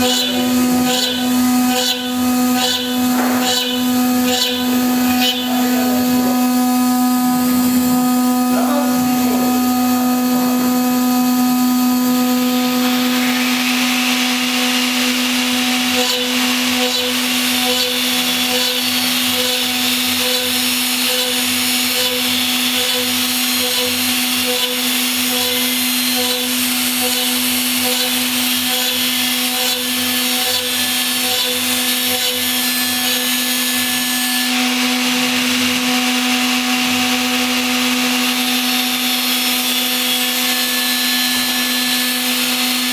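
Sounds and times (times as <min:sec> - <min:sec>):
router spindle whine: 0:00.0 - 0:42.9
hiss of end mill cutting metal: 0:12.9 - 0:30.6.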